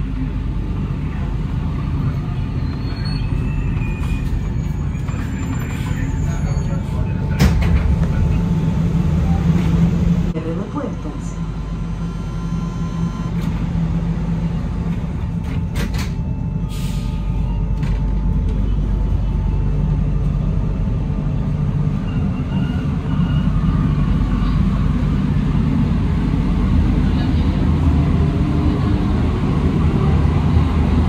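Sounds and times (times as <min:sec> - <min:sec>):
train running noise: 0:00.0 - 0:31.0
train doors closing: 0:02.0 - 0:20.7.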